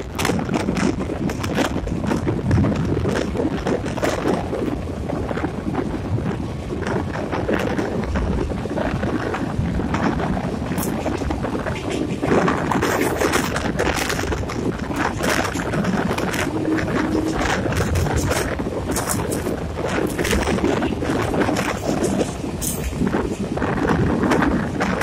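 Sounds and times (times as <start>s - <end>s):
train running rumble and knocks: 0.0s - 25.0s
wind buffeting microphone: 0.0s - 25.0s.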